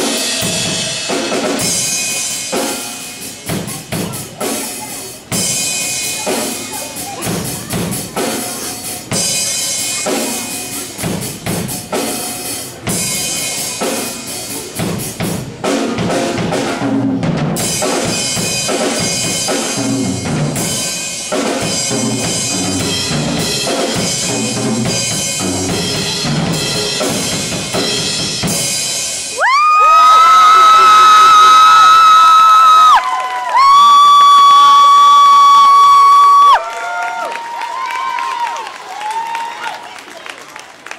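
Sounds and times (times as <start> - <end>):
drum kit playing beat: 0.0 - 29.6
audience cheering and screaming: 29.3 - 40.3.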